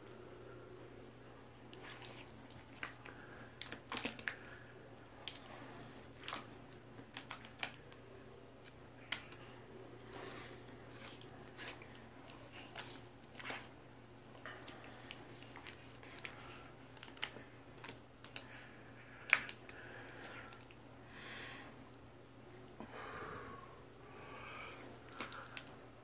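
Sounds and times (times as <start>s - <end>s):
steady low hum: 0.0s - 26.0s
slime crackling and squishing: 1.6s - 8.0s, 8.6s - 18.5s.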